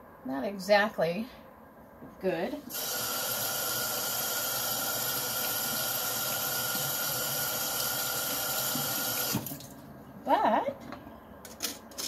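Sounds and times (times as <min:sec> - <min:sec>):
faucet water running into sink: 0:02.7 - 0:09.8.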